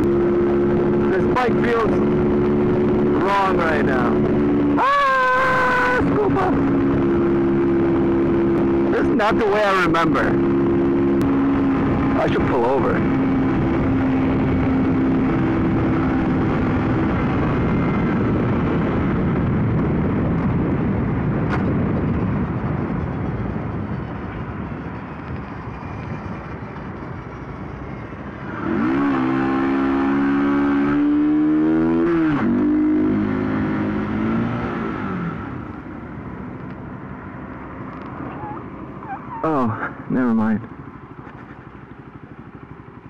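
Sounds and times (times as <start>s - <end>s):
motorcycle engine revving: 0.0s - 43.0s
wind and road noise: 0.0s - 43.0s.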